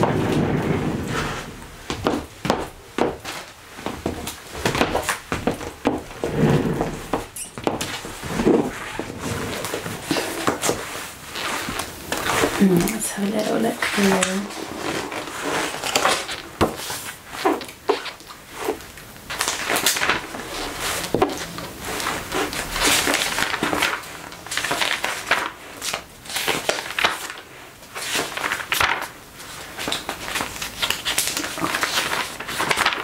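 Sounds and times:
magazine pages turning: 6.8s - 33.0s.

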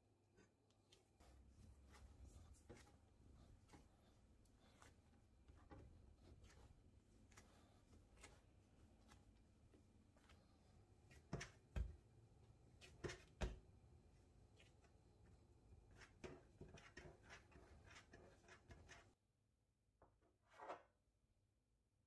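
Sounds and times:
hands tapping and rubbing dough: 0.3s - 13.8s
dough thumps: 11.2s - 12.1s.

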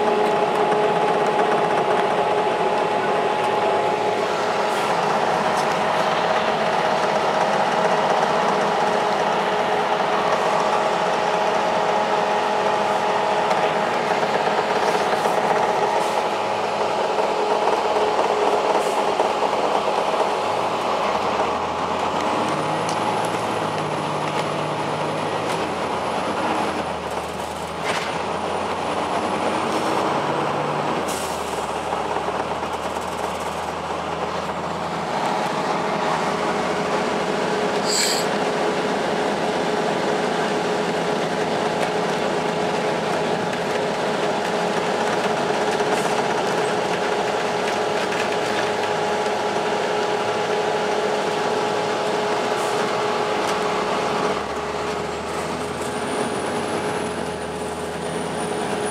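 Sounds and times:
bus diesel engine and transmission whine: 0.0s - 58.9s.

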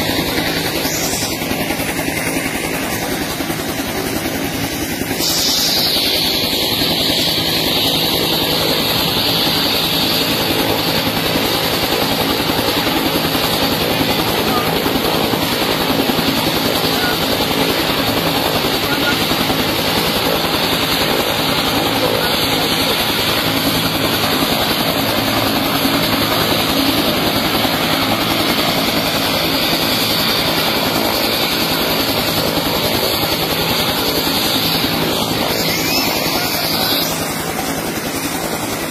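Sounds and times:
helicopter rotor and engine: 0.0s - 38.9s
crowd voices: 33.8s - 38.9s.

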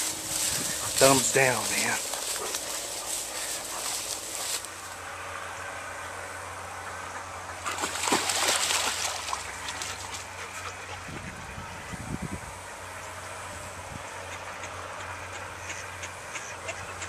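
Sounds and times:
swishing through tall grass: 0.0s - 5.0s
steady low hum: 0.0s - 17.0s
water splashing: 7.6s - 10.2s.

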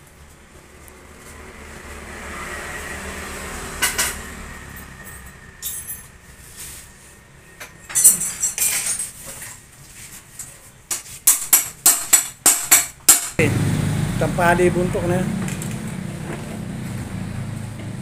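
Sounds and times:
metal clinking on metal: 5.0s - 6.2s, 7.6s - 9.2s.

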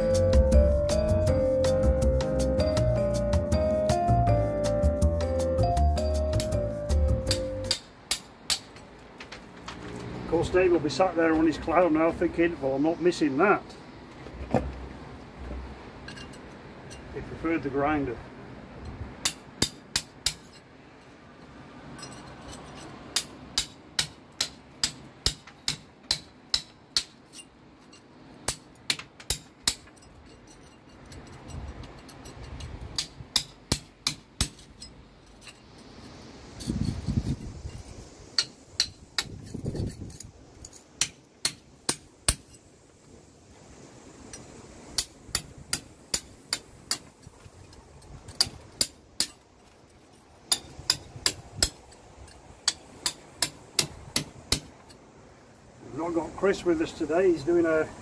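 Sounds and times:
hammer tapping metal chisel: 7.3s - 8.9s.

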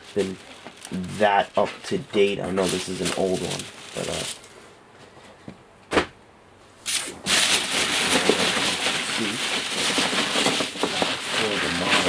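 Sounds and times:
hand rummaging packing peanuts: 0.0s - 4.5s, 7.3s - 12.0s.

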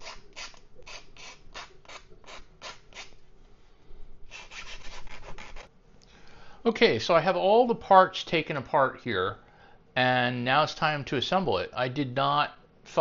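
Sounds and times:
hand file rasping plastic: 0.0s - 3.2s, 4.3s - 5.7s.

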